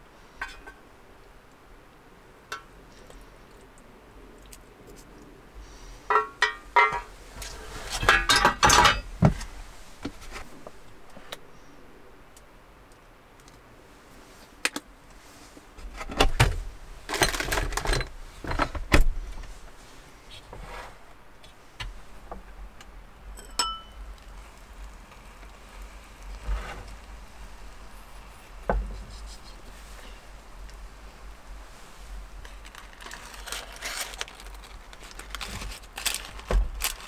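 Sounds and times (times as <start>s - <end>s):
cookware and tableware clattering: 6.1s - 7.1s, 8.0s - 9.1s, 23.4s - 24.0s
short ringing clink: 23.4s - 24.0s.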